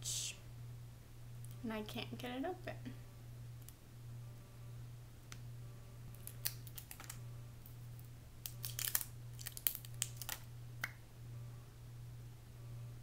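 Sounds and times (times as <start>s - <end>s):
low electrical hum: 0.0s - 13.0s
plastic packaging clicking and crackling: 6.2s - 7.2s, 7.9s - 10.5s.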